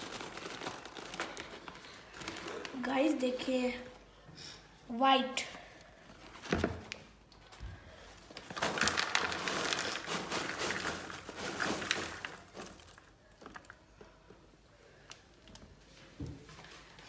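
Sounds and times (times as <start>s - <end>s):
paper bag crinkling: 0.0s - 2.9s, 8.3s - 13.8s
popcorn tumbling into bowl: 8.4s - 13.9s.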